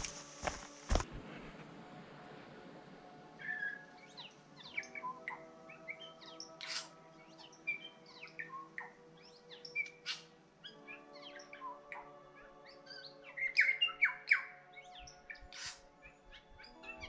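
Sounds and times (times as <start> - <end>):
soft music chords: 0.0 - 17.0
birds chirping and whistling: 3.4 - 17.0.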